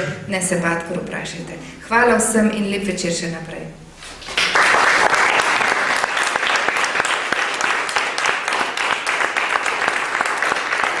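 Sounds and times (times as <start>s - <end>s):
audience applause: 4.3s - 11.0s.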